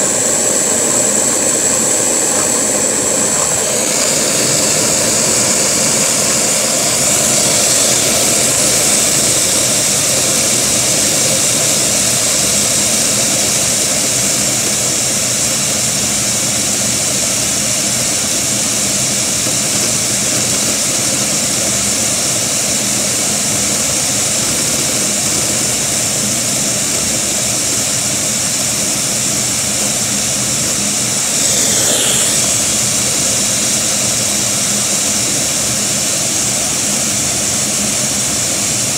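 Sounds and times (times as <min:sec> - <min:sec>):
vacuum cleaner hissing: 0:00.0 - 0:14.2, 0:31.2 - 0:36.3
small engine idling: 0:01.7 - 0:15.4, 0:31.3 - 0:35.6
falling whistle: 0:31.4 - 0:34.5.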